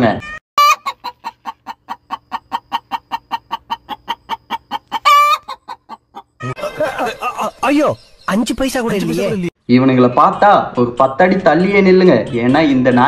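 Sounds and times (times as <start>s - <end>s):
chicken cackle: 0.2s - 7.8s
chicken clucking: 0.6s - 7.6s.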